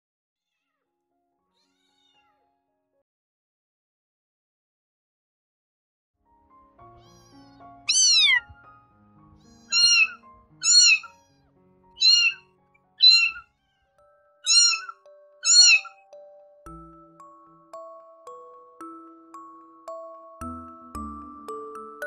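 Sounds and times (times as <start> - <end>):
kitten meowing: 7.0 - 8.6, 9.4 - 16.0.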